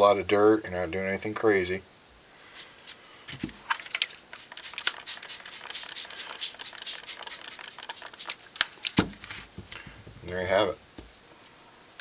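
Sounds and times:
spray bottle squirting water: 0:03.7 - 0:09.0.

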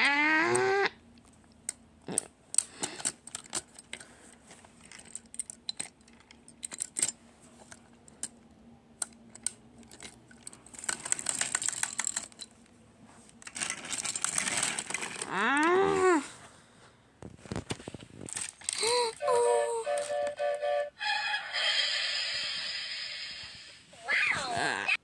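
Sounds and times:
plastic pieces clicking: 0:01.5 - 0:04.1, 0:04.8 - 0:07.2, 0:09.0 - 0:12.5, 0:13.4 - 0:15.8, 0:18.3 - 0:19.1
toy train gear clicking: 0:02.5 - 0:04.1, 0:04.8 - 0:07.2, 0:09.0 - 0:12.5.

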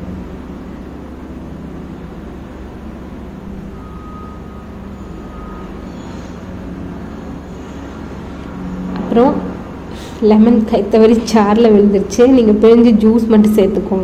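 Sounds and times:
low rumbling hum: 0:00.0 - 0:14.0
faint thin whistle: 0:03.6 - 0:06.5.

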